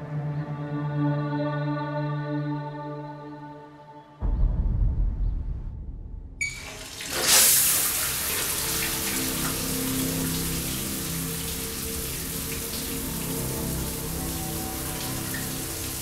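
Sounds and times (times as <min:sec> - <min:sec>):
shower water hissing: 0:06.4 - 0:16.0.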